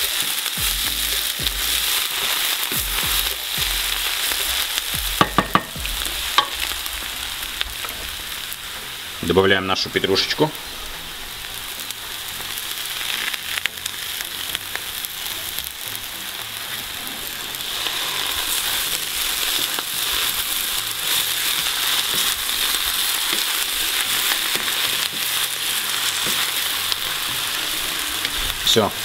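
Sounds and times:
vegetables sizzling in oil: 0:00.0 - 0:29.0.

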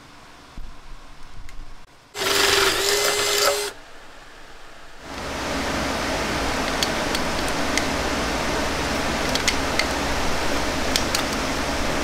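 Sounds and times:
small power tool motor running: 0:02.2 - 0:03.8.

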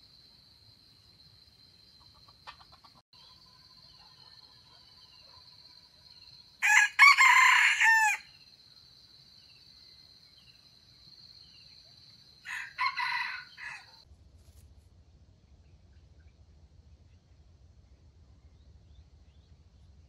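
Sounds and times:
rooster crowing: 0:06.6 - 0:08.4, 0:12.4 - 0:14.0.

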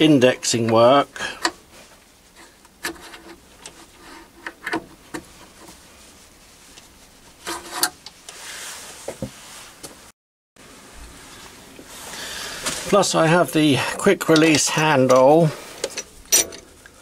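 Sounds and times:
metallic clicks and knocks: 0:14.3 - 0:16.7.

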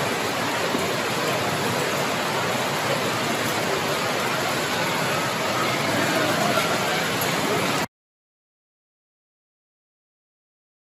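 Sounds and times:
heavy hail and rain falling: 0:00.0 - 0:07.9.

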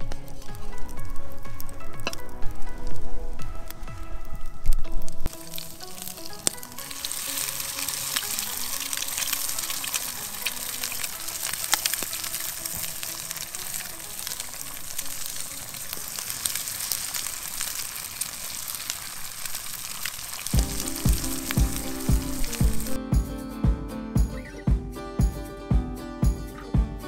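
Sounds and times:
eggs and bacon sizzling: 0:00.0 - 0:23.0
fat popping and crackling: 0:00.0 - 0:23.2.

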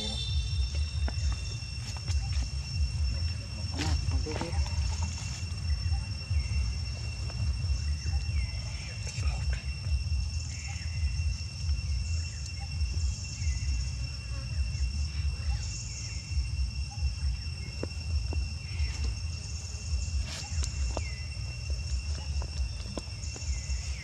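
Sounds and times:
high insect drone: 0:00.0 - 0:24.0
low rumble: 0:00.0 - 0:24.0.

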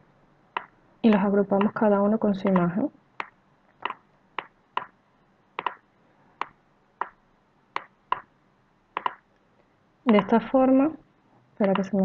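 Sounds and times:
computer mouse clicking: 0:02.4 - 0:04.9, 0:05.6 - 0:05.8, 0:09.0 - 0:09.2, 0:10.1 - 0:10.4, 0:11.6 - 0:12.0.

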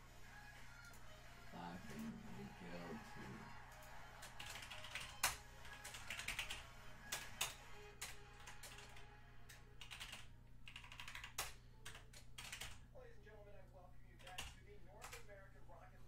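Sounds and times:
typing on computer keyboard: 0:03.7 - 0:12.8, 0:14.2 - 0:15.3.

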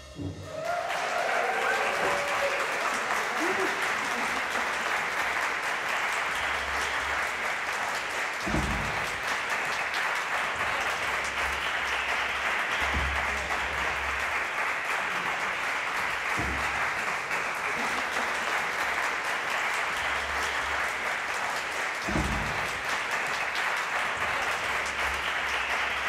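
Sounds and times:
audience applauding: 0:00.0 - 0:26.0
low thuds: 0:08.4 - 0:09.4, 0:22.0 - 0:22.9.

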